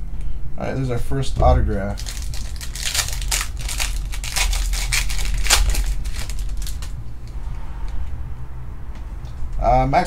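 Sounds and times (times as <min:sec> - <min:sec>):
foil wrapper tearing and crinkling: 0:01.8 - 0:07.0.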